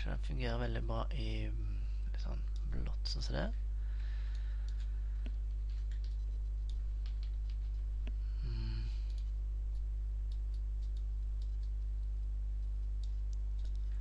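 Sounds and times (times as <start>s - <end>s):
steady low hum: 0.0s - 14.0s
computer mouse clicks: 4.3s - 8.2s, 9.0s - 13.9s.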